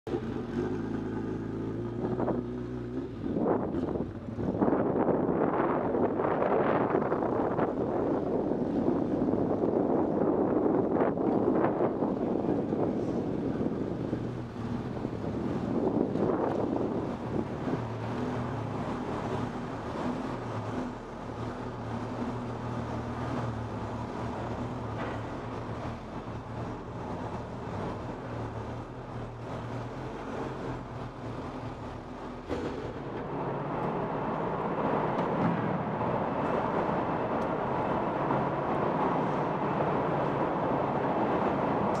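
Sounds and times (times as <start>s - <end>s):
motorcycle engine at low revs: 0.1s - 7.3s.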